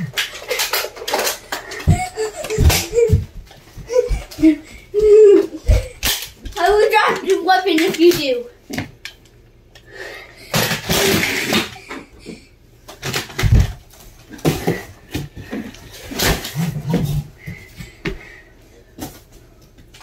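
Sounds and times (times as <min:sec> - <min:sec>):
people scuffling and rustling: 0:00.0 - 0:07.4.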